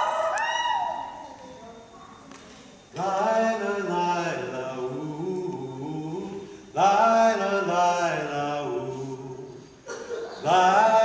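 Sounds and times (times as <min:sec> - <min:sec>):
voices singing in harmony: 0:03.0 - 0:11.0.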